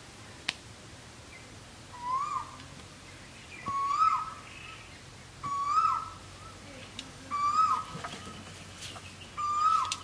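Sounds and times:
light clicks of sticks: 0.4 - 0.7, 6.7 - 7.2, 7.9 - 10.0
bird whistled call: 2.0 - 2.6, 3.5 - 6.6, 7.3 - 7.9, 9.4 - 10.0.

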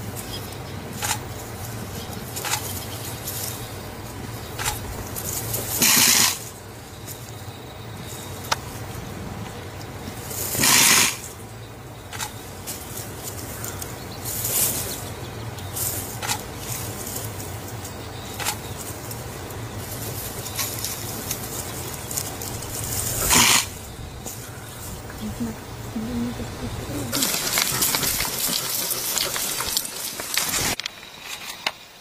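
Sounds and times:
low steady hum: 0.0 - 5.8, 6.4 - 10.6, 11.2 - 31.2
porcupine quills rattling: 0.0 - 31.7
sharp clicks: 4.6 - 4.9, 18.3 - 18.7, 27.1 - 31.8.

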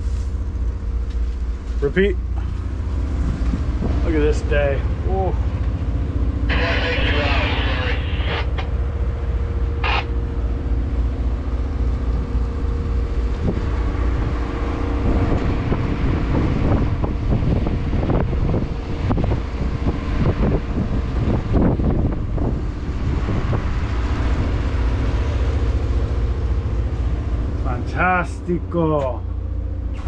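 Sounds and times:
boat engine droning: 0.0 - 30.0
wind buffeting microphone: 2.8 - 5.1, 11.9 - 24.8.

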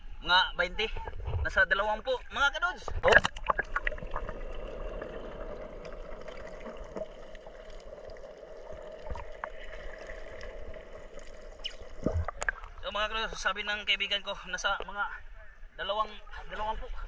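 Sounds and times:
muffled underwater hiss: 2.8 - 13.5.

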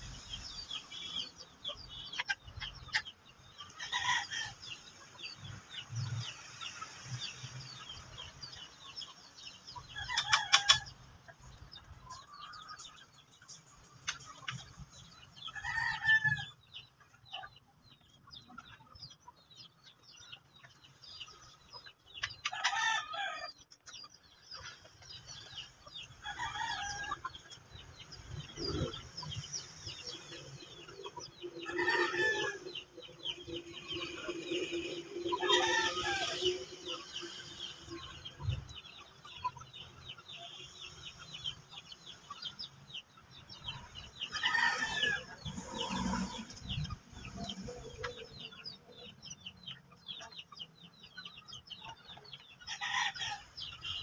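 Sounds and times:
hens clucking: 0.0 - 54.0
roosters crowing: 3.6 - 5.4, 9.4 - 11.0, 14.6 - 16.9, 22.3 - 23.7, 25.1 - 39.8, 43.6 - 49.2, 52.6 - 54.0.

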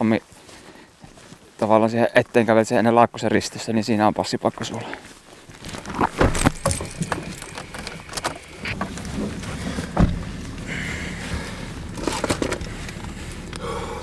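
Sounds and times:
low vehicle hum: 5.2 - 14.0
clicks knocks and rustling: 5.6 - 10.3
car door shutting: 5.9 - 13.6.

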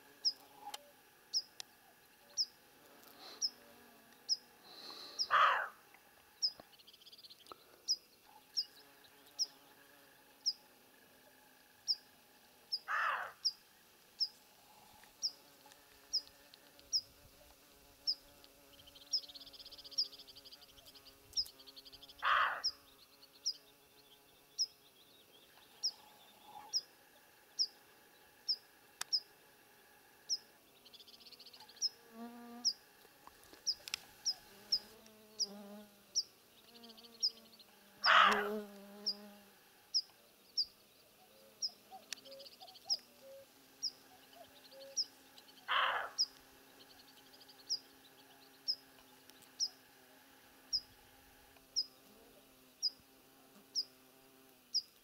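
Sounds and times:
deer barking: 5.3 - 5.8, 12.9 - 13.4, 22.2 - 22.8, 38.0 - 38.5, 45.7 - 46.3.

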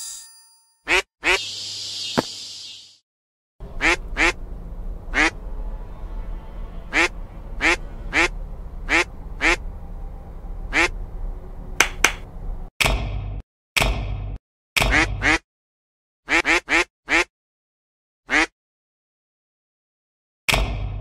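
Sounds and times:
low hum: 3.6 - 12.7
cartoon duck quacking: 5.1 - 5.4, 8.9 - 9.6, 14.8 - 15.4, 16.3 - 17.3, 18.3 - 18.5.

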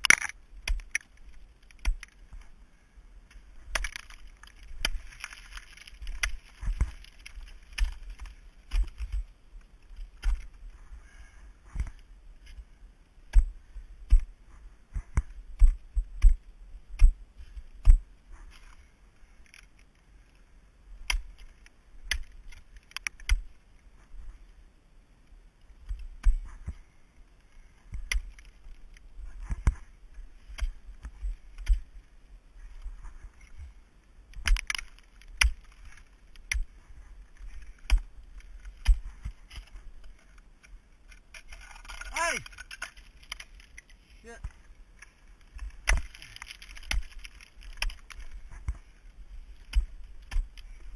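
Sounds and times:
ice axe and crampons striking ice: 0.0 - 2.5, 3.6 - 9.3, 9.9 - 10.6, 13.2 - 14.3, 14.9 - 18.8, 21.0 - 23.6, 25.8 - 26.8, 27.8 - 31.9, 34.3 - 50.9.

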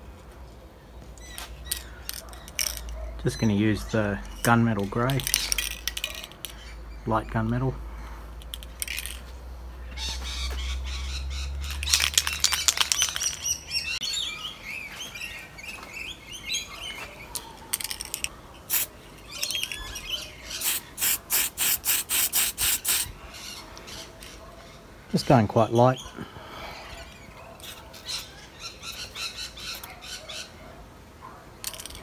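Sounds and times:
birds chirping: 0.0 - 21.2, 22.1 - 32.0
spray paint can hissing: 17.8 - 18.9, 20.5 - 23.1.

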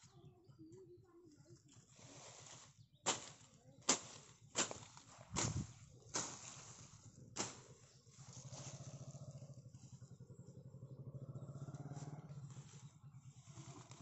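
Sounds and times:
machete chopping weeds: 2.4 - 8.7
vehicle engine passing: 5.2 - 14.0.

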